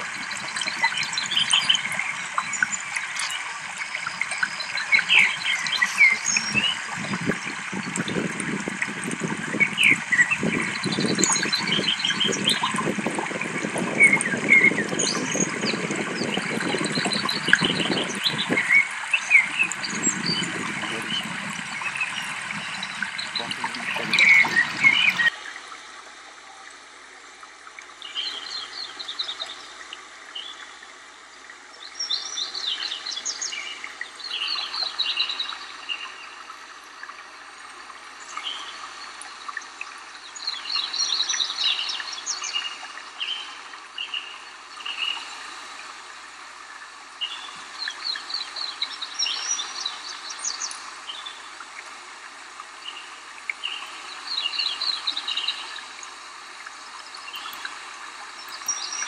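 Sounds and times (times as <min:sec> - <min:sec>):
songbird singing: 0:00.0 - 0:25.4, 0:28.0 - 0:30.8, 0:31.8 - 0:36.4, 0:47.2 - 0:51.5, 0:57.0 - 0:59.0
flowing water hiss: 0:00.0 - 0:59.0.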